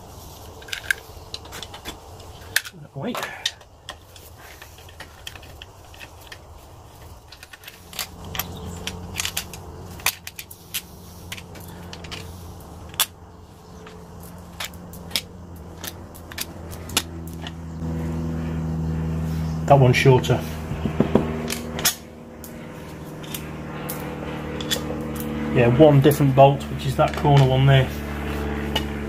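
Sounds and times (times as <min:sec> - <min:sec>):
low steady hum: 0:00.0 - 0:29.0
metal bolts clinking: 0:00.7 - 0:17.6.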